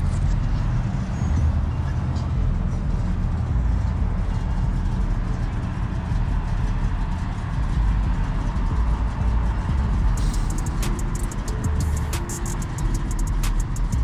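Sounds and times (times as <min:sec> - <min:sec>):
cars driving past: 0:00.0 - 0:14.0.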